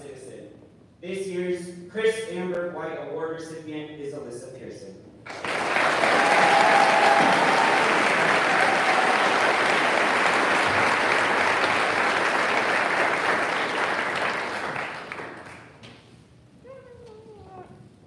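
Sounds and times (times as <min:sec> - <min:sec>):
audience applauding: 0:05.3 - 0:15.8.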